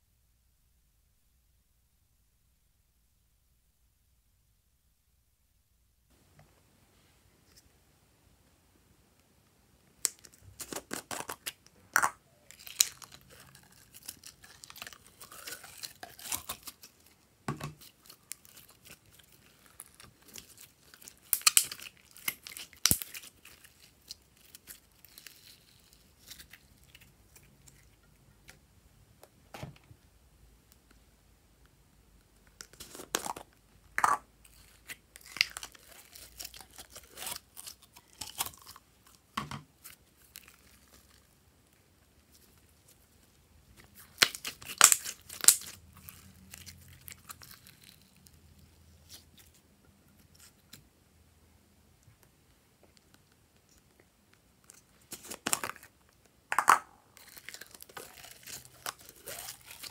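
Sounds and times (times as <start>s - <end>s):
slime crackling and popping: 10.0s - 17.2s, 17.8s - 27.5s, 32.6s - 39.1s, 43.8s - 48.4s, 54.6s - 59.9s.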